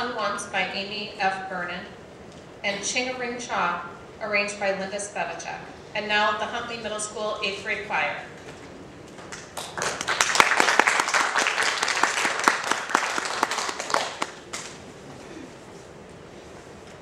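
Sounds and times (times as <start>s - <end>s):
audience applauding: 9.2s - 14.8s.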